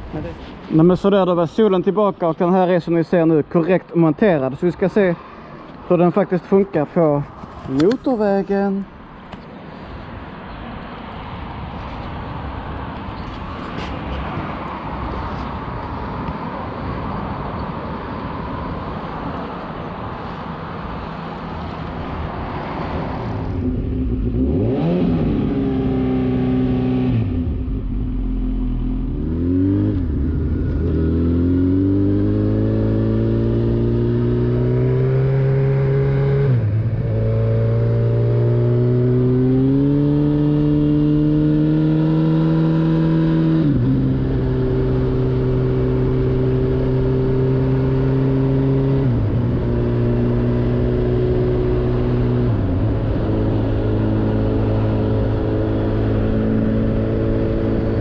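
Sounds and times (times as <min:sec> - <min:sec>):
motorcycle engine accelerating: 0:23.4 - 0:58.0.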